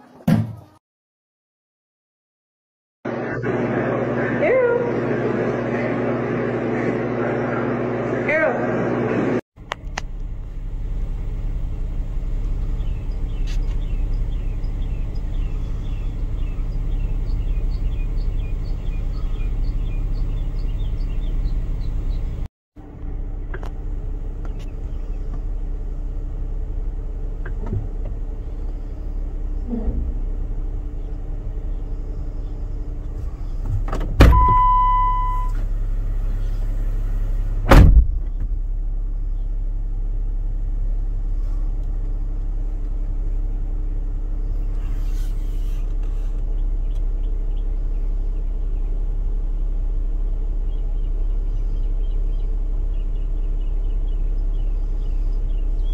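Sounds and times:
engine idling hum: 3.1s - 55.9s
short electronic beep: 34.3s - 35.6s.

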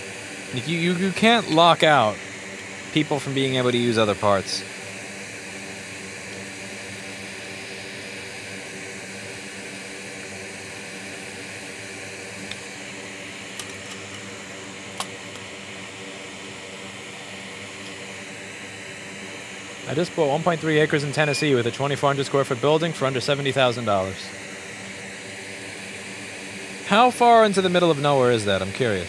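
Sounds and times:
electric fan humming: 0.0s - 29.0s.

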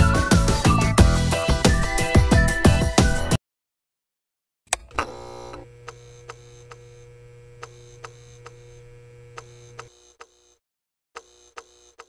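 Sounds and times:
electrical hum: 4.8s - 9.9s.

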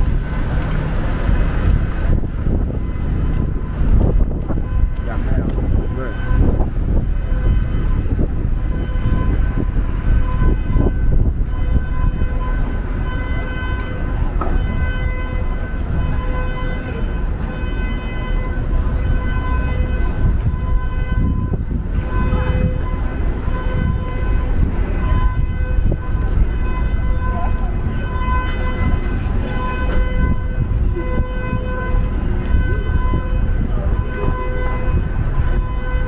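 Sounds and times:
street traffic rumbling: 0.0s - 36.0s.

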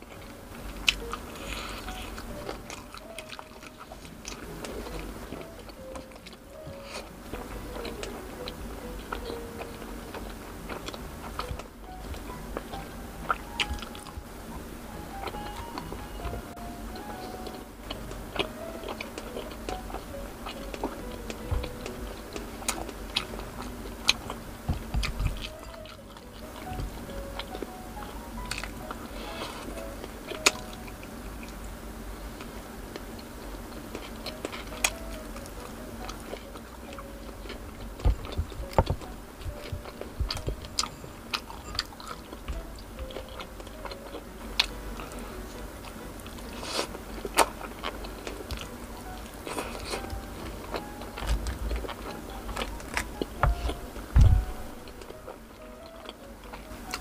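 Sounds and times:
person biting and chewing: 0.0s - 14.3s, 32.4s - 57.0s.

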